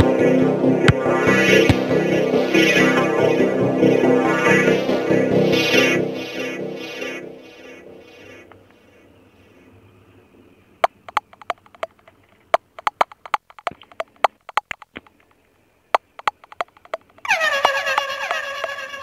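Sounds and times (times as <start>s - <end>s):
sharp clicks: 10.8s - 15.4s, 16.0s - 18.8s.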